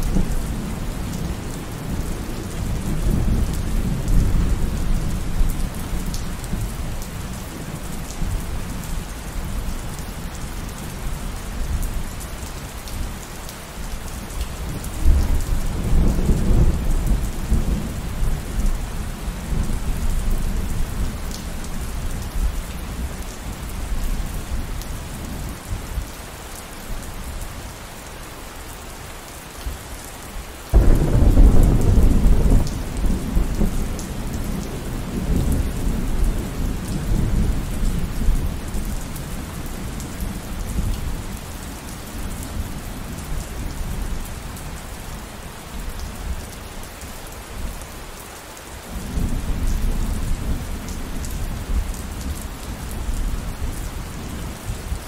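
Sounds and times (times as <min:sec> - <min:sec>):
steady rain: 0:00.0 - 0:55.0
loud thunderclap: 0:30.7 - 0:33.8
rolling thunder: 0:30.7 - 0:38.1.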